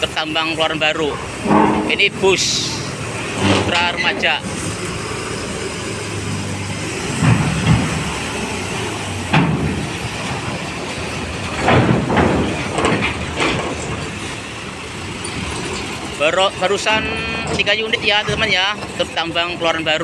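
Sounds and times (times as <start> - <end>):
bus engine running: 0.0 - 20.0
heavy clanks on steel ramp: 1.2 - 4.5, 9.2 - 14.5.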